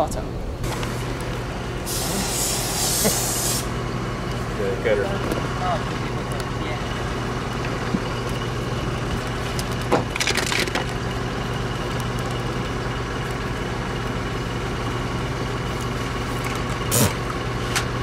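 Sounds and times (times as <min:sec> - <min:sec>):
steady machine hum: 0:00.0 - 0:18.0
broken pieces rattling: 0:09.6 - 0:11.0.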